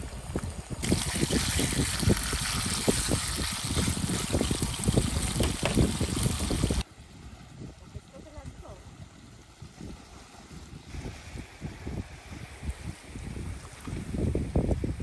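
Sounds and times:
wind buffeting microphone: 0.0 - 15.0
bacon sizzling: 0.8 - 6.8.

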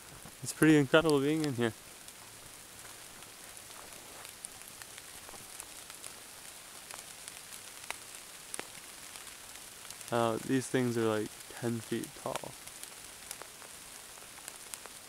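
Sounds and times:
light rain on foliage: 0.0 - 15.0.

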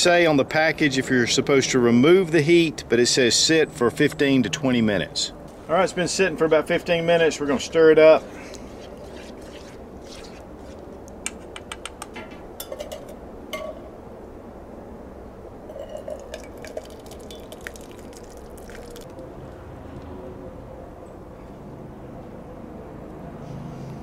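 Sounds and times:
wet squish of food: 16.6 - 19.2.

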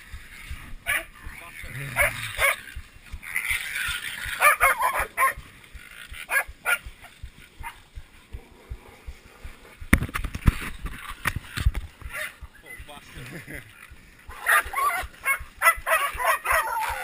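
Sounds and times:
crackling brush: 0.0 - 17.0
dogs yelping and barking: 0.8 - 7.9, 12.0 - 12.7, 14.3 - 17.0.

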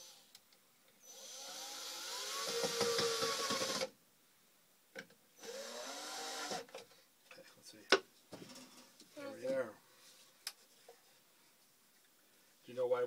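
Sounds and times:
cordless drill whining: 1.0 - 3.9, 5.4 - 6.7.

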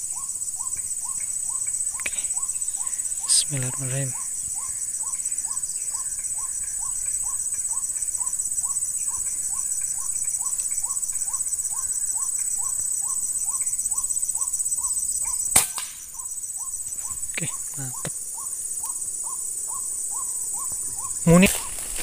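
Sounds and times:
insects droning: 0.0 - 22.0
rifle shot: 15.5 - 16.0.

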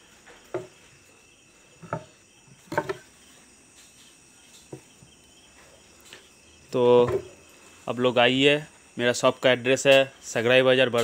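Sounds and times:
wooden bats knocking: 0.5 - 0.8, 1.8 - 3.1.

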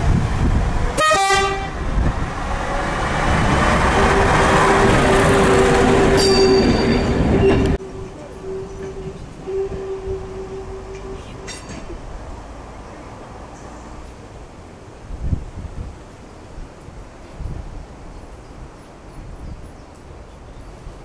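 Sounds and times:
railbus engine and wheel noise: 0.0 - 21.0
railbus horn blast: 0.9 - 1.9, 3.9 - 11.9.

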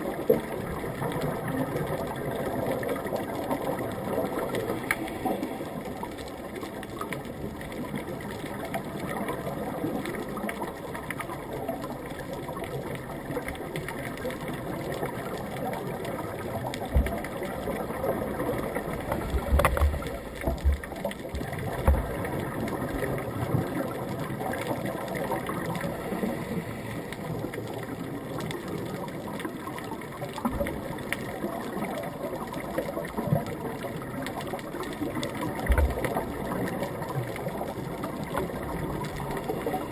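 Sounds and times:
muffled underwater droning hum: 0.0 - 39.9.

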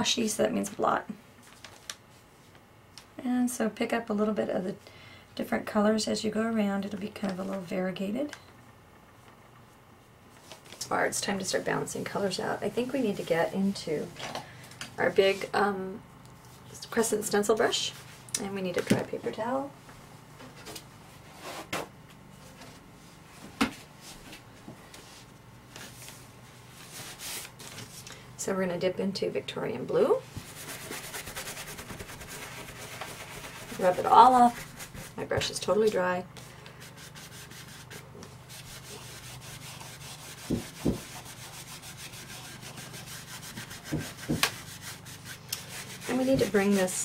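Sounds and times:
low steady hum: 0.0 - 47.0
stencil brush scrubbing surface: 30.3 - 35.6, 36.8 - 47.0.

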